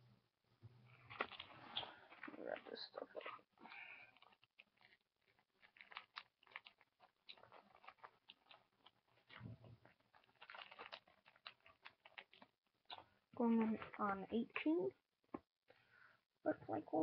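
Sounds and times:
paper packets crinkling: 1.0s - 13.0s.

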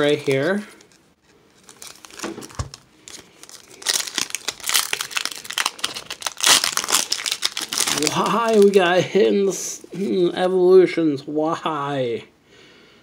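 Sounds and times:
foil pack tearing open: 0.0s - 8.8s
foil wrappers crinkling: 0.0s - 9.0s.

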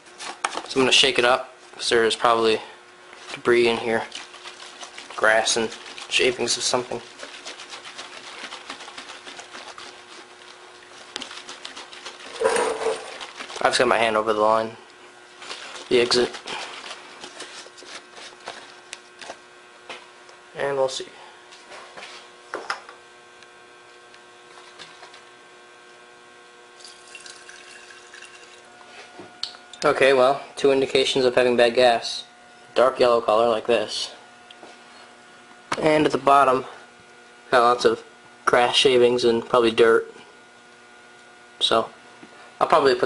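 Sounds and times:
fuel sloshing in plastic tank: 3.2s - 19.4s
faint trickle of liquid: 26.8s - 28.7s.

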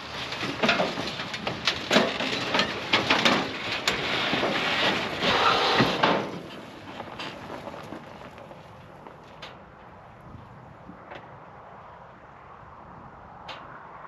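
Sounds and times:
vehicle clanking off trailer: 0.0s - 10.1s
tyres crunching on gravel: 0.0s - 11.4s.

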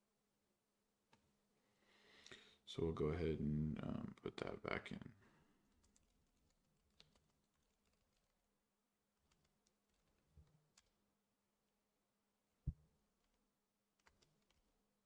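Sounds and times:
faint keyboard typing: 5.6s - 11.1s, 13.0s - 14.8s.

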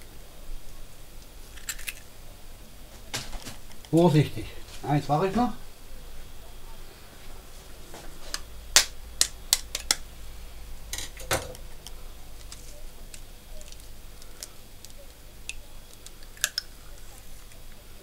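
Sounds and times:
eggshell clicking: 8.4s - 10.0s, 11.0s - 16.9s.

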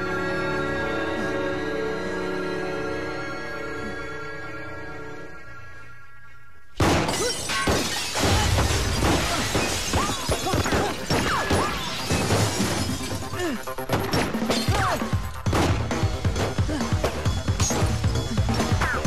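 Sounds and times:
action film music: 0.0s - 7.0s, 10.3s - 19.0s
glass shattering: 6.8s - 16.6s.

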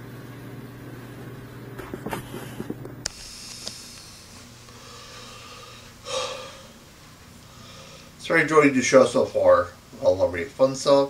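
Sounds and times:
electrical hum: 0.0s - 11.0s
recording hiss: 3.0s - 11.0s.

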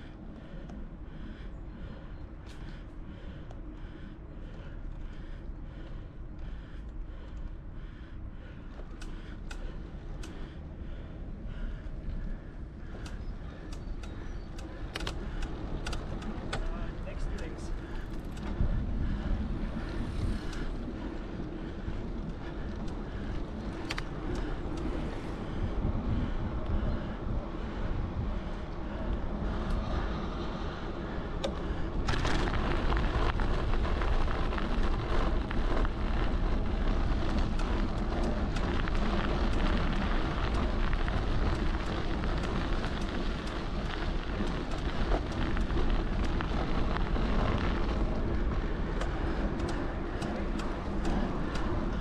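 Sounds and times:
road and traffic noise: 0.0s - 52.0s
wind buffeting microphone: 0.0s - 52.0s.

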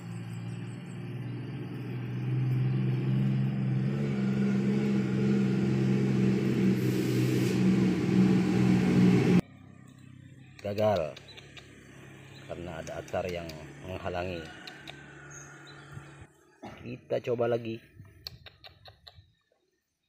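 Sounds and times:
motor engine humming: 0.0s - 9.8s.

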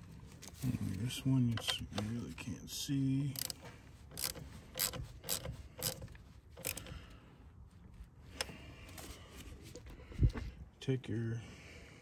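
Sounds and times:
ratchet wrench clicking: 3.3s - 6.9s.

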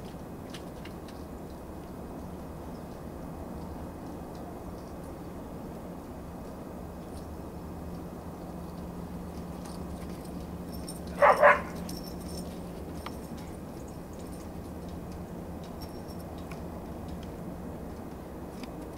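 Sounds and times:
dog barking: 11.1s - 12.0s.

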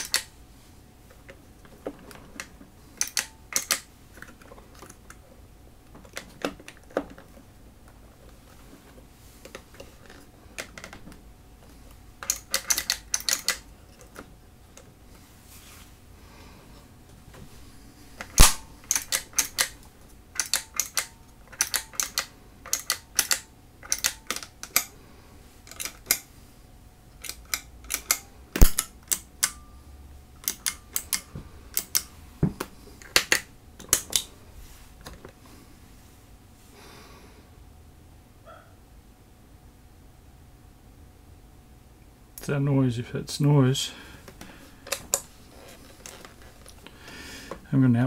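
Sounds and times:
pedal footswitches clicking: 2.4s - 3.9s, 18.2s - 19.8s, 20.4s - 24.9s, 27.2s - 29.6s.

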